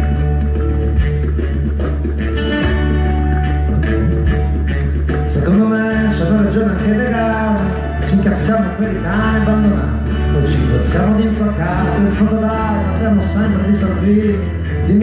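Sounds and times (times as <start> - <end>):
steady bass: 0.0 - 15.0.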